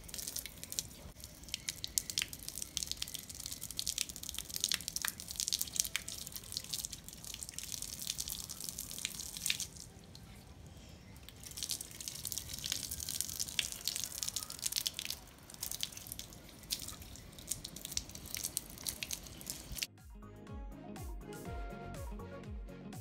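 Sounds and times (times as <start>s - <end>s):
rain dripping on wet concrete: 0.0s - 10.4s, 11.2s - 19.9s.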